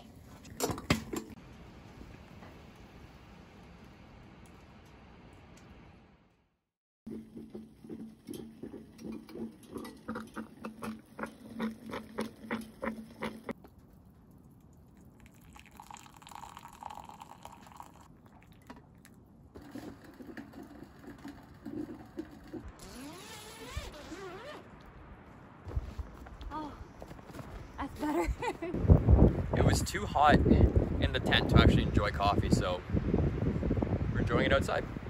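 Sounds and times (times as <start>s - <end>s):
coffee percolator gurgling: 7.1s - 13.6s, 15.2s - 18.6s, 19.6s - 22.8s
coffee pouring into glass mug: 14.9s - 19.2s.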